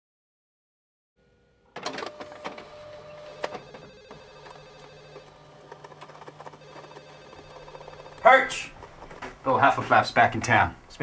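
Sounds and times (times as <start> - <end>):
telephone ringing: 1.8 - 9.0.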